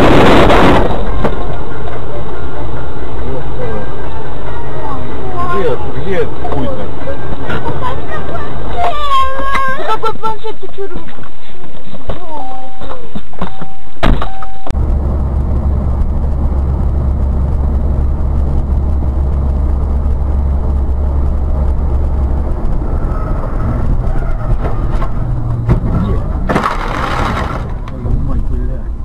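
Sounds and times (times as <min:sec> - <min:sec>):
loud distorted sound: 0:00.0 - 0:01.8, 0:22.1 - 0:27.8
vehicle engine and road noise: 0:00.0 - 0:29.0.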